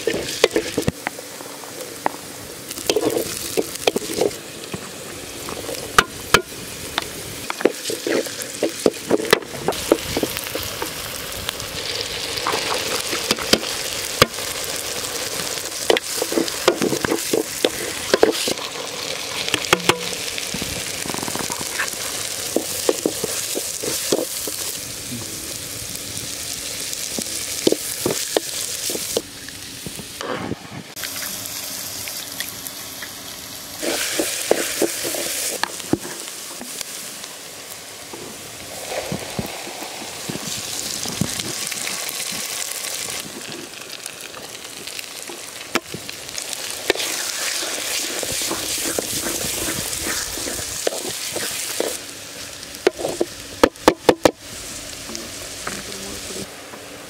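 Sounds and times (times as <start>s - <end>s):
vegetables sizzling in hot oil: 0.0s - 30.2s, 30.9s - 57.0s
wooden spatula scraping pan: 7.5s - 10.3s, 15.9s - 20.1s, 46.9s - 52.0s.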